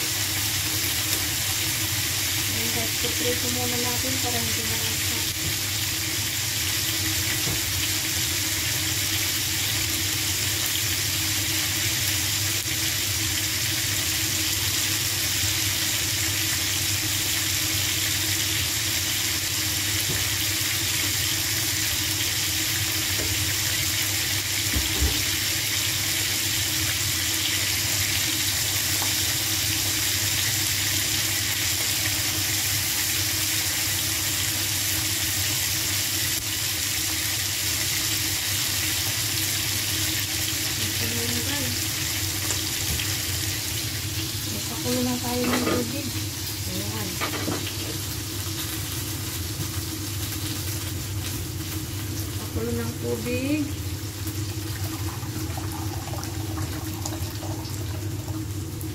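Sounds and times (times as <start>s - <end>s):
fish frying in oil: 0.0s - 58.9s.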